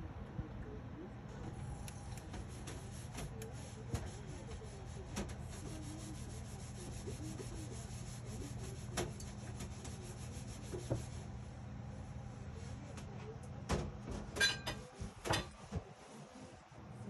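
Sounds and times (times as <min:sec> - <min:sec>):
rubbing and handling noise: 0:01.5 - 0:11.6.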